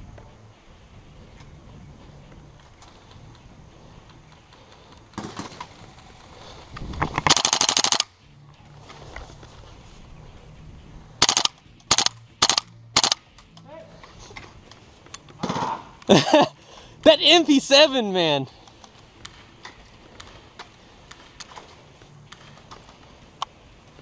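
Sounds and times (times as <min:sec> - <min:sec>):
airsoft gun firing full auto bursts: 0:07.2 - 0:08.1, 0:11.2 - 0:13.2.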